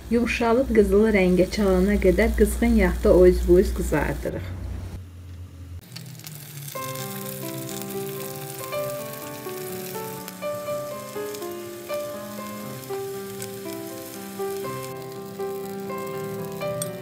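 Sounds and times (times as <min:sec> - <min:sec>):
eggplant sizzling in oil: 0:00.1 - 0:04.4, 0:05.8 - 0:17.0
instrumental background music: 0:06.4 - 0:17.0.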